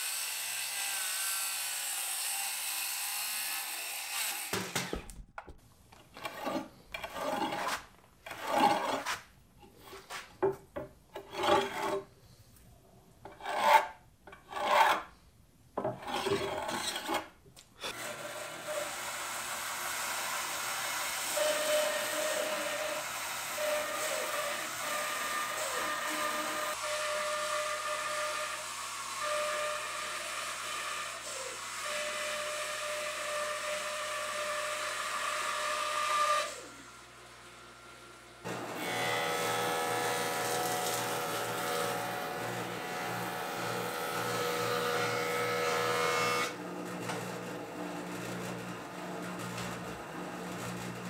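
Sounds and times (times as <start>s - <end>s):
circular saw cutting wood: 0.0s - 5.0s, 6.2s - 9.2s, 16.0s - 51.0s
bandsaw cutting wood: 0.0s - 5.1s, 6.2s - 9.2s, 17.8s - 37.8s, 38.4s - 51.0s
scraping strokes on wood: 6.1s - 12.1s, 13.2s - 15.1s.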